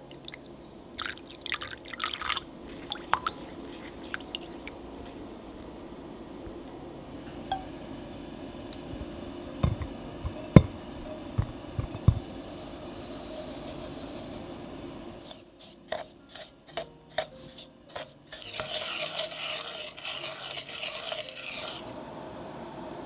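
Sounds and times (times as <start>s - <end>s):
spatula stirring in glass bowl: 2.0s - 5.2s, 15.2s - 21.9s.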